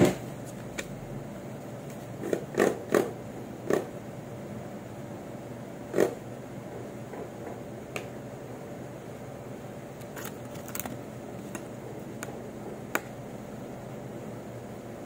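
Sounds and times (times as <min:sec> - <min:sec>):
laboratory equipment hum: 0:00.0 - 0:15.0.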